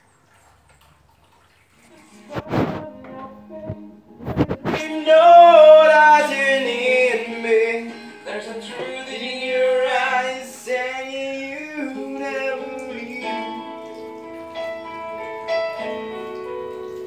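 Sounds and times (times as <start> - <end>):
person singing long notes: 1.9 - 14.0
music: 1.9 - 17.0.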